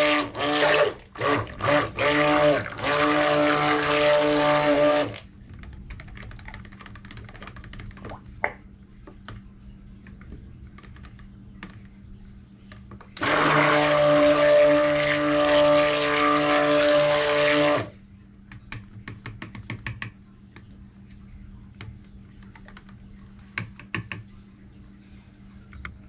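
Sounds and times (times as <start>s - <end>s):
stick blender motor: 0.0s - 5.2s, 13.2s - 17.9s.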